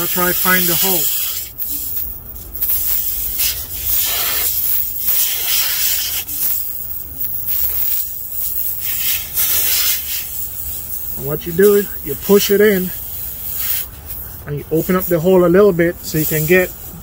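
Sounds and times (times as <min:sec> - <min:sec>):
air hissing from tyre: 0:00.0 - 0:17.0.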